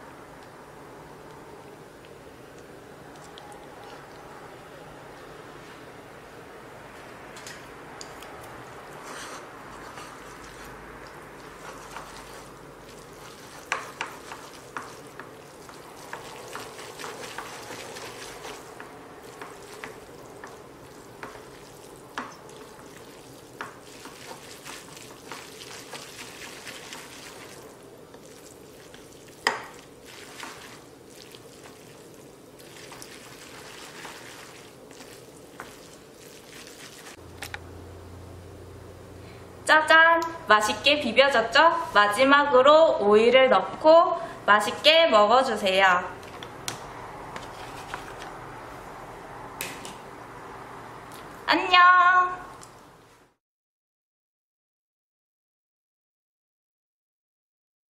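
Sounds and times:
wet sticky noodle stirring: 2.0s - 4.4s, 7.4s - 37.6s, 46.2s - 49.0s.

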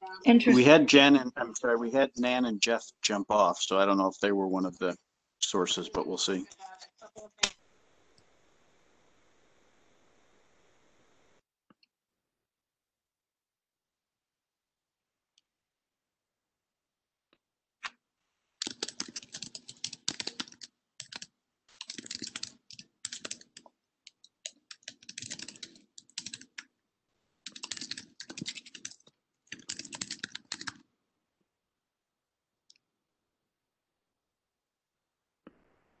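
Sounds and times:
typing on a computer keyboard: 18.6s - 26.7s, 27.4s - 30.8s.

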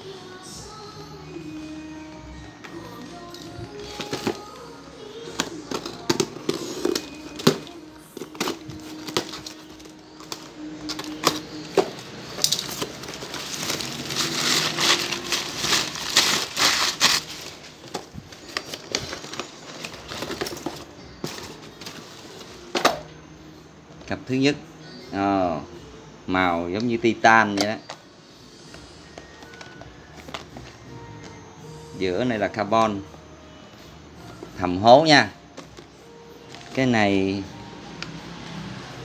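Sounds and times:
crumpled paper rustling: 3.4s - 4.6s, 5.4s - 22.6s
blade slitting packing tape: 12.4s - 17.5s.

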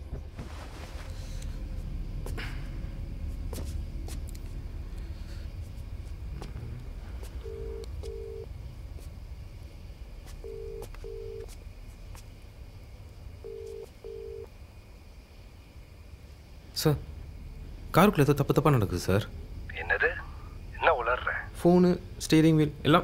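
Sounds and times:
low steady rumble: 0.0s - 23.0s
phone ringback tone: 10.4s - 11.4s, 13.5s - 14.4s.

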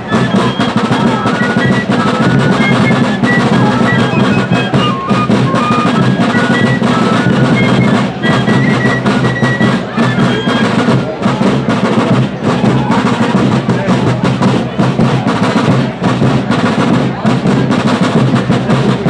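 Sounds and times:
fifes playing melody: 0.0s - 12.5s
snare drum rolls: 0.0s - 19.0s.

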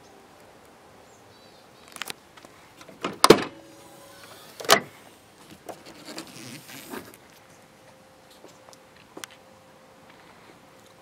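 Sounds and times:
tailgate clunks: 2.8s - 5.0s.

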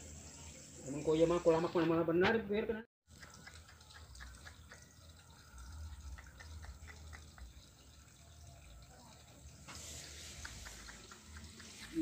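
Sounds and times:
water dripping and plinking: 3.1s - 12.0s
hiss: 9.7s - 12.0s.

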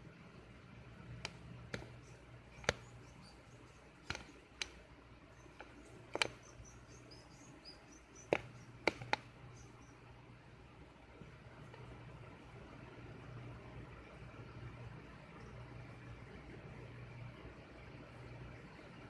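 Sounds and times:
mouse squeaking: 1.8s - 4.5s, 5.3s - 10.0s.

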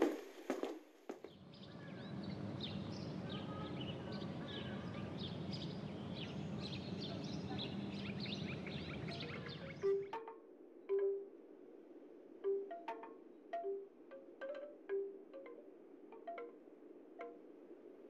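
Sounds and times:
birds chirping: 1.3s - 10.3s
low background rumble: 1.4s - 10.0s.

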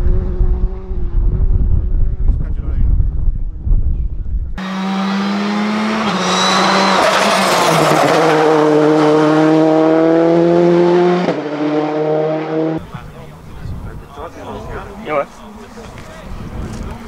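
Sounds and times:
rally car engine driving by: 4.6s - 13.4s.

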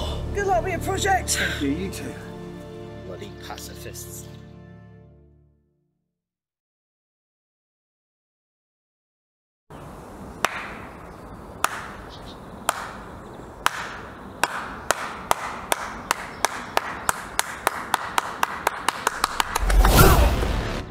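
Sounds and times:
person clapping hands: 10.4s - 10.7s, 11.6s - 11.9s, 12.7s - 13.0s, 13.7s - 19.9s.

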